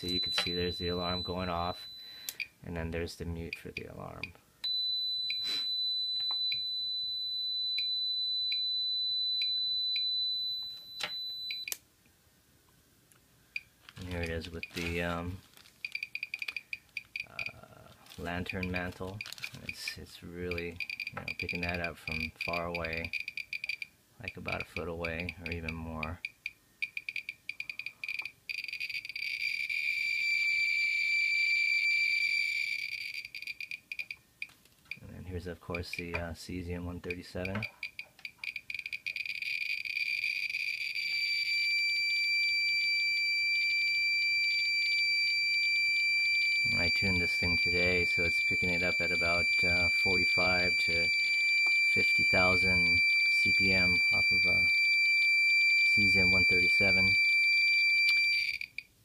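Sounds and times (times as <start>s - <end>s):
geiger counter chirping: 0.0s - 2.5s, 15.8s - 17.6s, 20.7s - 23.9s, 26.2s - 34.2s, 37.4s - 58.9s
high-pitched alarm beep: 0.0s - 2.5s, 4.6s - 11.8s, 26.2s - 34.2s, 37.5s - 58.8s
geiger counter clicks: 20.5s - 29.6s, 37.4s - 40.6s.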